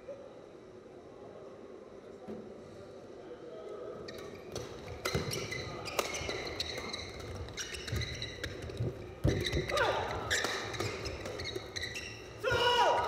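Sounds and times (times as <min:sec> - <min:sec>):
shoes squeaking on court: 0:04.0 - 0:12.7
rackets hitting shuttlecock: 0:04.1 - 0:13.0.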